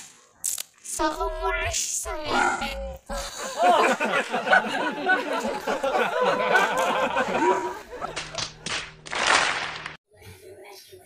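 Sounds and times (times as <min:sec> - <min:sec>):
jumbled overlapping voices: 0:01.1 - 0:08.3.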